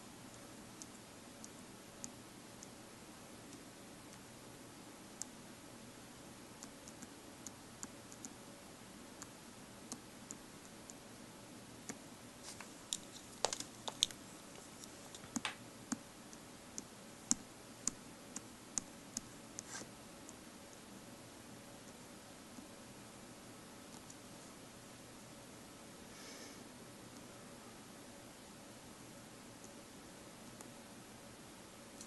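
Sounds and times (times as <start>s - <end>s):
steady hiss: 0.0s - 32.0s
fingers tapping on touchscreen: 12.9s - 14.2s, 15.2s - 16.0s.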